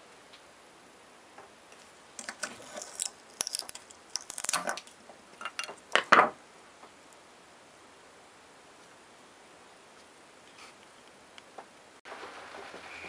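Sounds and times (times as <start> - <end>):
small hard parts clicking: 1.8 - 6.2.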